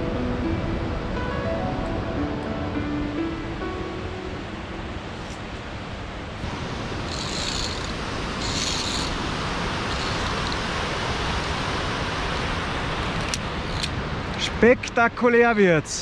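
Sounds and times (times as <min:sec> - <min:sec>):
waterfall roaring: 0:05.0 - 0:16.0.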